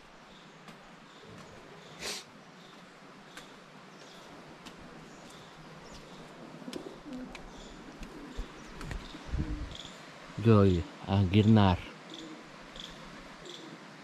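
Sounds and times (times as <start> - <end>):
pigeons cooing: 5.7 - 9.9, 12.0 - 14.0.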